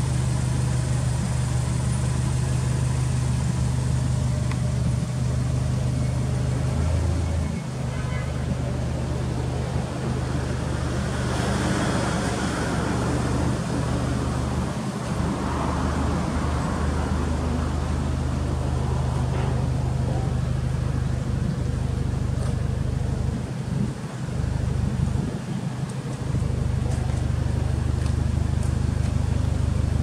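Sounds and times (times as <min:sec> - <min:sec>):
car engine idling: 0:00.0 - 0:30.0.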